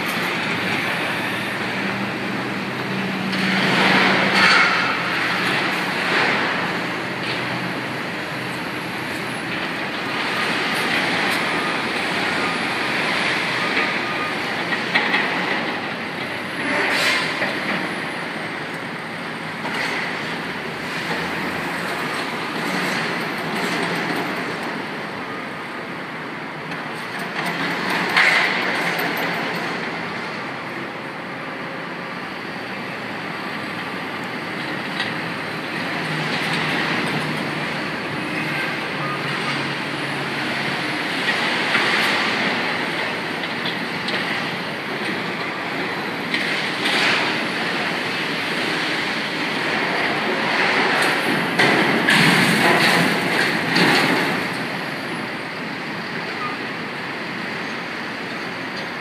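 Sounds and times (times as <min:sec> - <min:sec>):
excavators working: 0:00.0 - 0:59.0
clanking and scraping debris: 0:03.6 - 0:06.5.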